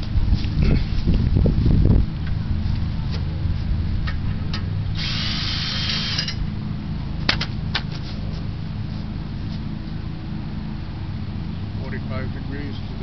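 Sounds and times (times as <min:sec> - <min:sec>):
steady low hum: 0:00.0 - 0:13.0
actuator motor whirring: 0:04.9 - 0:06.4.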